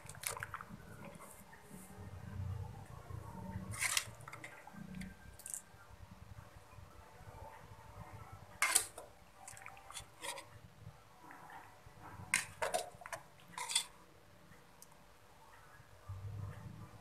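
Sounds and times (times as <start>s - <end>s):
metal ladle scraping a pan: 3.6s - 4.6s, 8.6s - 10.5s, 12.3s - 14.0s.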